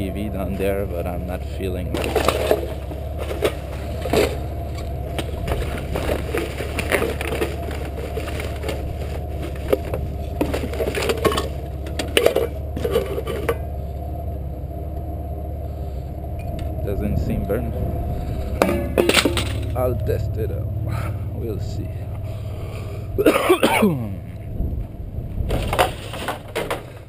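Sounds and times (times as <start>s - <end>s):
plastic bags rustling and crinkling: 5.1s - 11.6s
sharp knocks in metal dumpster: 18.6s - 19.8s.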